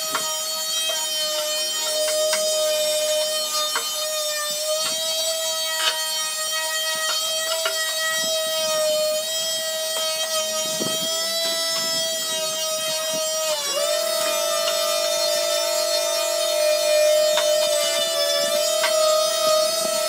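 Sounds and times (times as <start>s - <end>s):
electric sander whining: 0.0s - 20.0s
sander pad clicking on wood: 12.9s - 20.0s.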